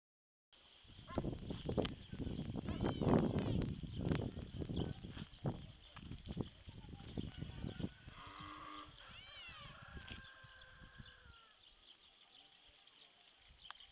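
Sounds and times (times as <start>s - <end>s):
livestock long call: 7.5s - 11.6s
livestock bleating: 8.1s - 9.6s.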